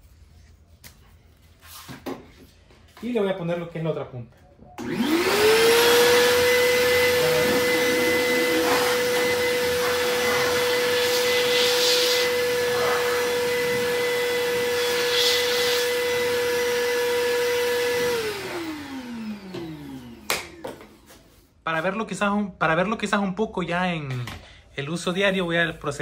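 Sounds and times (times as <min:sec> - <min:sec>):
shop vacuum motor whine: 0:04.8 - 0:21.2.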